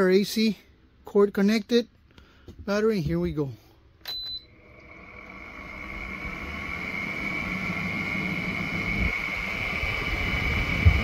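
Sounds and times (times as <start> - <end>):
air conditioner fan whir: 2.6 - 11.0
air conditioner beep: 4.0 - 4.7.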